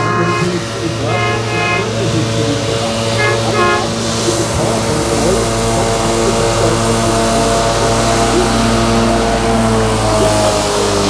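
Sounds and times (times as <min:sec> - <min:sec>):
short horn toot: 0:00.0 - 0:02.1, 0:03.1 - 0:04.0
tractor engine droning: 0:00.0 - 0:11.0.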